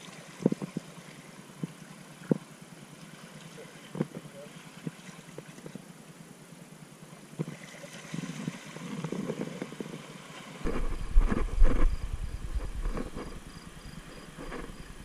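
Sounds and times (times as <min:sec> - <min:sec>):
low rumble: 0:10.6 - 0:15.0.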